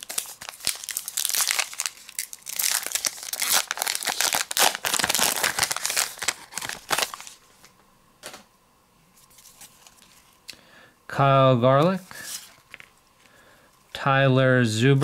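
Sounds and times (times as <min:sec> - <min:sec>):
plastic wrapper crinkling: 0:00.0 - 0:07.4, 0:12.3 - 0:13.0.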